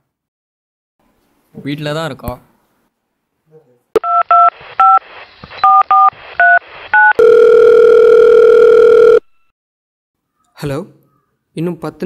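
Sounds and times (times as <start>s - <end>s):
telephone line tone: 4.0s - 5.0s, 5.6s - 9.5s
telephone keypad tones: 7.0s - 9.5s.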